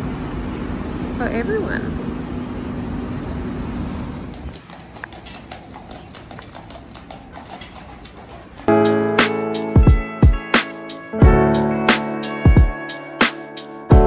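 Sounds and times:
sharp clacks: 4.2s - 9.3s.

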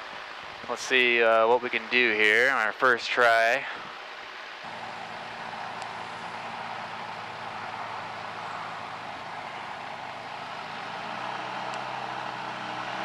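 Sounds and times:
propeller and air rushing: 3.8s - 13.0s
ultralight aircraft engine hum: 4.7s - 13.0s.

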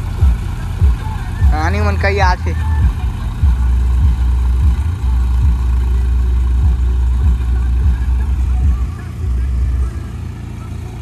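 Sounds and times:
tractor diesel engine rumbling: 0.0s - 11.0s.

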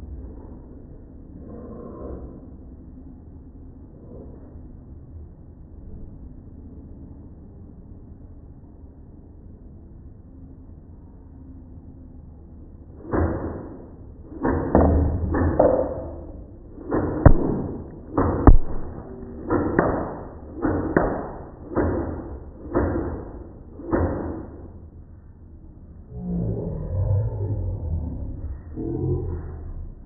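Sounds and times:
sharp clicks: 16.8s - 23.0s
toy blaster shots popping: 16.9s - 22.0s.

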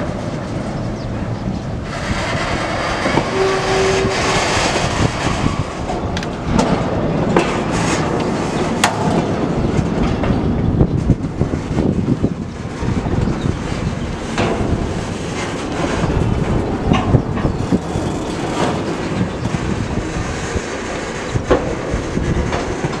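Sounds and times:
freight wheels clattering over track: 0.0s - 23.0s.

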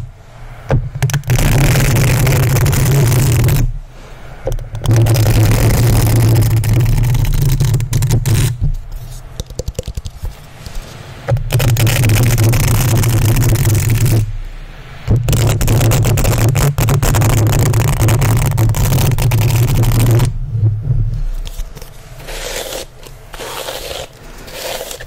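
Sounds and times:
hairbrush scratching microphone grille: 21.4s - 25.0s.

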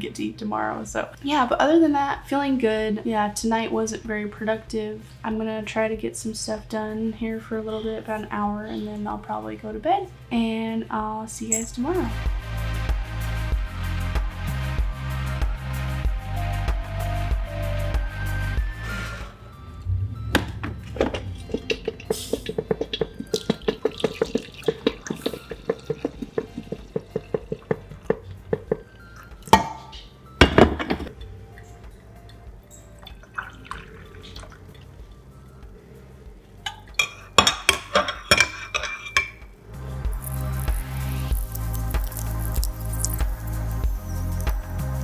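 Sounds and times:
coffee pouring into mug: 21.4s - 29.7s, 33.0s - 35.0s
glass knocking on ceramic: 21.5s - 28.9s.

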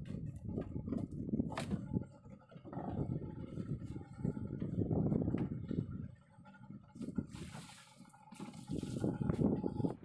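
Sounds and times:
hiss of washing water: 7.3s - 9.1s.

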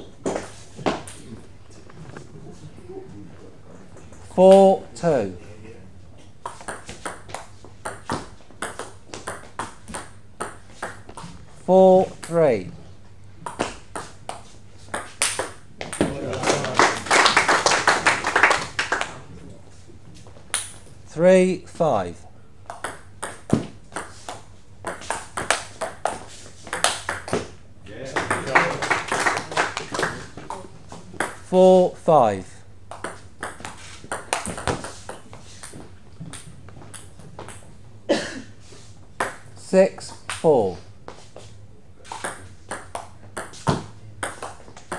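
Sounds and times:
table tennis ball hits: 6.4s - 11.3s, 13.4s - 19.0s, 22.7s - 31.5s, 32.9s - 37.7s, 39.2s - 39.5s, 42.1s - 44.9s
spectators applauding: 16.2s - 19.2s, 28.1s - 30.4s.

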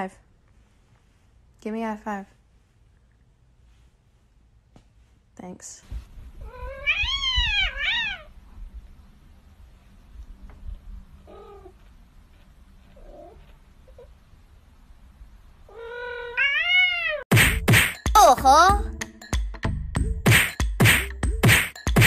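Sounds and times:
cat meowing: 6.4s - 8.3s, 15.7s - 17.2s.

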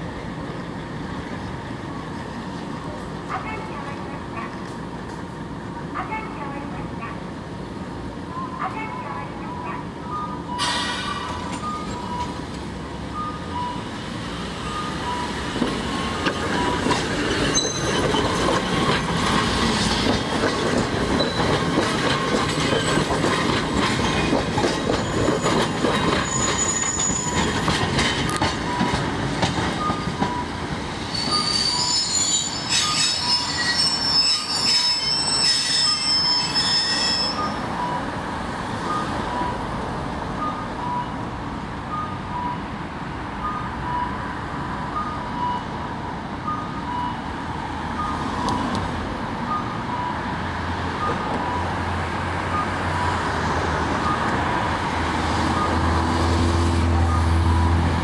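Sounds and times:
tram rumbling on track: 0.0s - 58.0s
tram wheels squealing: 10.2s - 12.5s, 13.2s - 38.1s.

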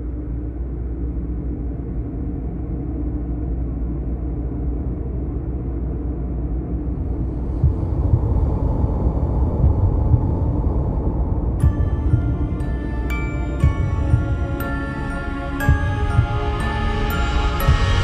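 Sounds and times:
low rumbling drone: 0.0s - 18.0s
deep irregular booms: 7.2s - 12.8s.

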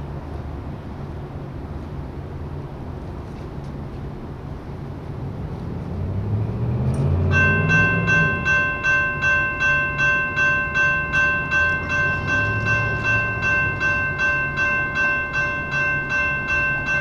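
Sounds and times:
railroad crossing bell ringing: 7.0s - 17.0s.

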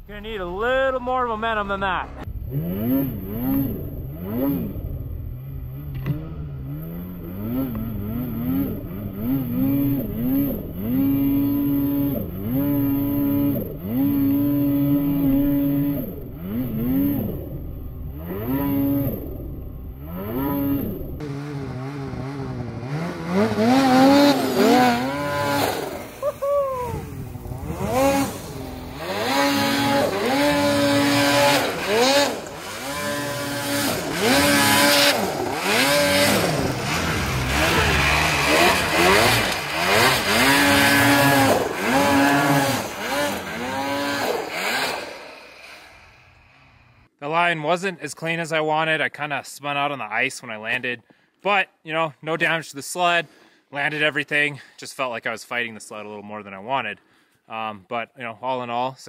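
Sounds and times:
snowmobile engine revving: 0.0s - 47.1s.

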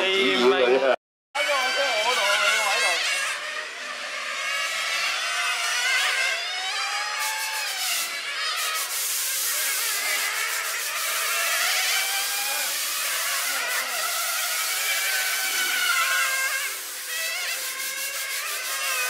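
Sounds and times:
rc car motors whining: 1.4s - 19.0s.

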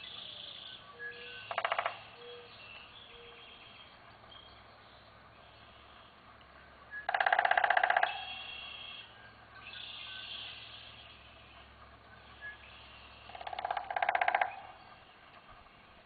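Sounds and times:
woodpecker rattle call: 0.0s - 4.4s, 6.9s - 16.0s
faint bird calls: 0.0s - 4.6s, 6.9s - 16.0s.

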